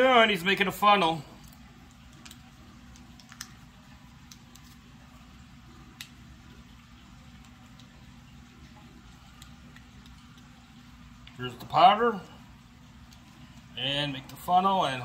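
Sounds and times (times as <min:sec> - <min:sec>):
low steady hum: 0:00.0 - 0:15.0
paper crinkling and ticking: 0:01.4 - 0:05.2, 0:05.8 - 0:10.6.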